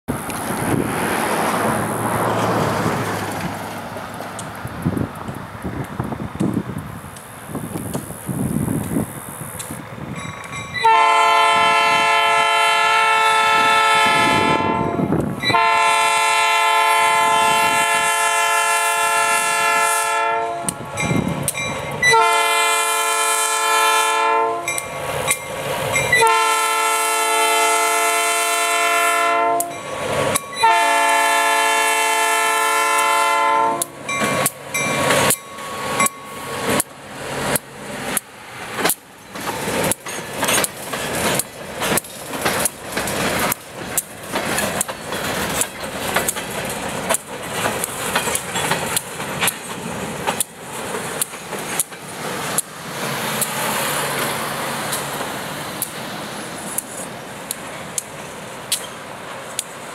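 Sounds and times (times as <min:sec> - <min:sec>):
train wheels clicking over rail joints: 0:00.1 - 0:10.9, 0:20.6 - 0:22.4, 0:24.6 - 0:26.5, 0:29.5 - 0:30.8, 0:33.7 - 0:59.9
locomotive air horn blasts: 0:10.8 - 0:20.8, 0:22.0 - 0:24.8, 0:26.2 - 0:29.8, 0:30.6 - 0:34.0.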